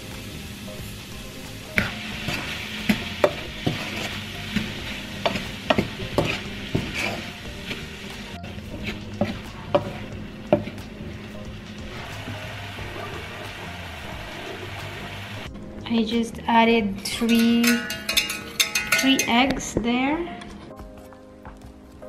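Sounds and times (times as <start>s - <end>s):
apples sizzling in a pan: 0.0s - 15.5s
wooden spatula knocking against pan: 1.8s - 7.2s, 9.2s - 10.8s.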